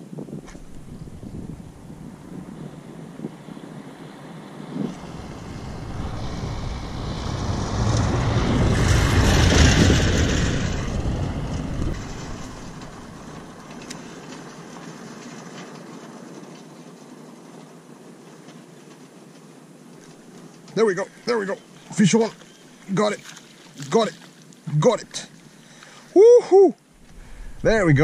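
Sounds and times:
faint steady rush: 0:00.3 - 0:23.2, 0:26.9 - 0:28.0
vehicle passing on dirt road: 0:00.4 - 0:16.2, 0:27.0 - 0:28.0.

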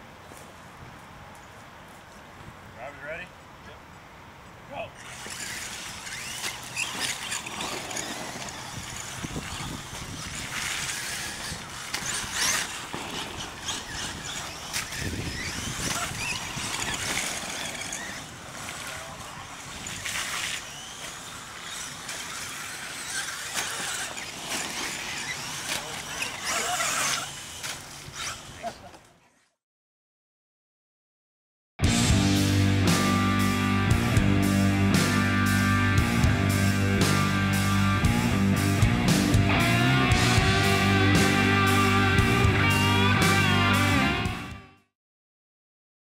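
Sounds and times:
toy truck motor whining: 0:05.0 - 0:29.5.

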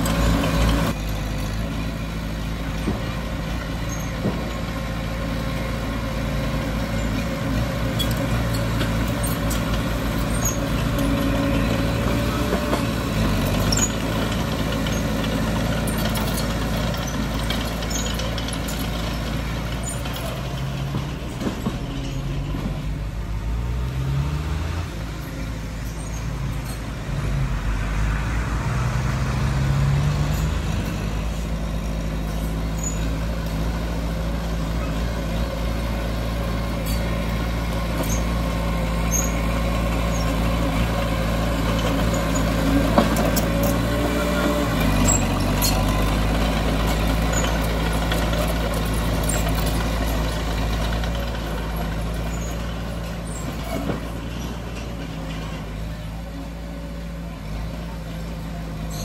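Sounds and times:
heavy diesel engine running: 0:00.0 - 0:59.0.

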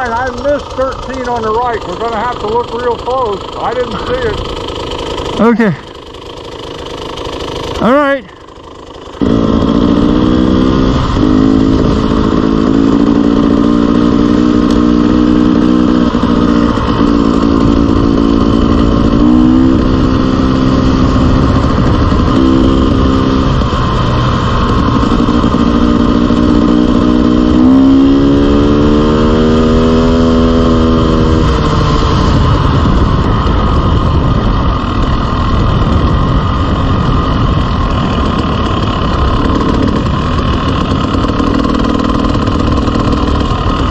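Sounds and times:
dirt bike engine revving: 0:00.0 - 0:43.9
wind noise: 0:09.2 - 0:43.9.

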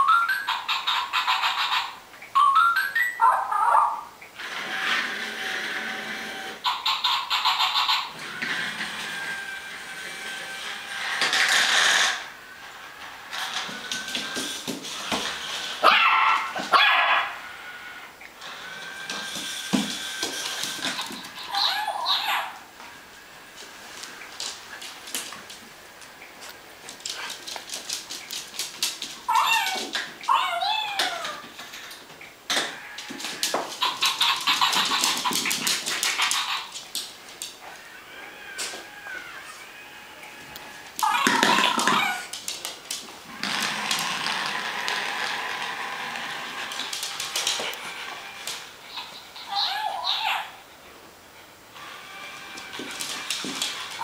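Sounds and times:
puppy whining yelps: 0:00.0 - 0:04.1, 0:15.8 - 0:17.4, 0:21.4 - 0:22.6, 0:29.3 - 0:31.4, 0:41.0 - 0:42.3, 0:48.9 - 0:50.6
toy motor whirring with clicks: 0:04.4 - 0:12.3
claws clicking on hard floor: 0:13.3 - 0:16.8, 0:24.4 - 0:30.3, 0:31.0 - 0:37.8, 0:40.5 - 0:49.1, 0:52.2 - 0:54.0.

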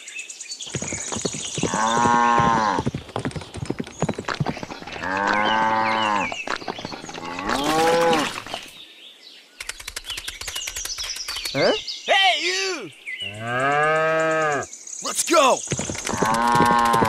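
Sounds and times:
cattle mooing: 0:05.0 - 0:06.3.

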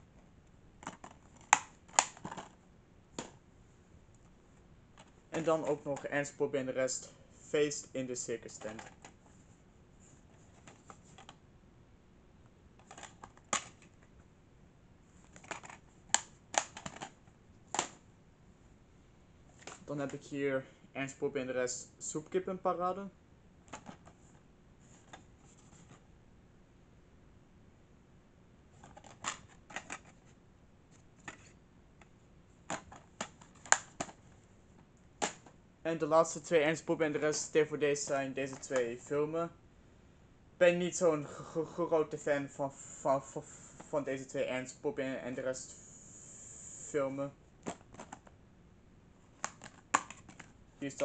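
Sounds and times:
plastic case snapping open: 0:00.8 - 0:02.5, 0:15.4 - 0:17.1, 0:49.4 - 0:50.5
plastic case clicking: 0:00.8 - 0:02.6, 0:15.4 - 0:17.1, 0:28.8 - 0:30.1, 0:49.4 - 0:50.5.

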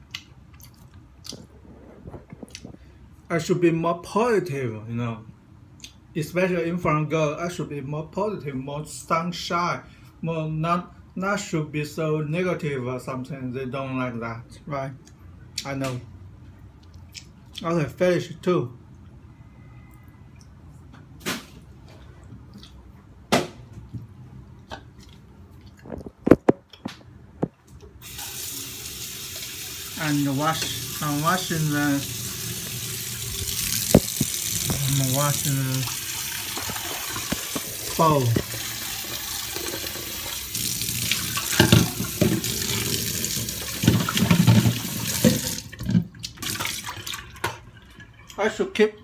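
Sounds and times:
tap water running: 0:28.0 - 0:48.4.

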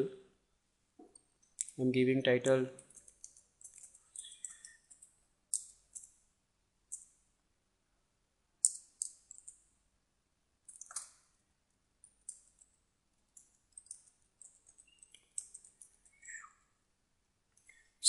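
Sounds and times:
computer keyboard typing: 0:02.8 - 0:06.1, 0:08.7 - 0:09.6, 0:13.4 - 0:16.0.

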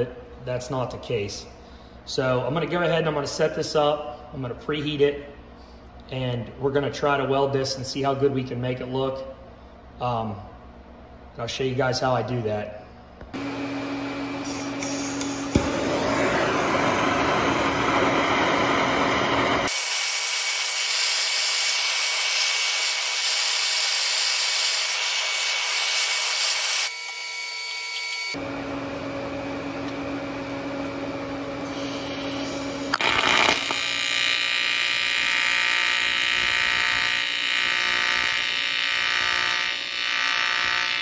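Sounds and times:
welding arc buzzing: 0:13.4 - 0:28.4, 0:31.6 - 0:41.0
gas torch flame hissing: 0:14.4 - 0:23.4, 0:31.6 - 0:33.8.

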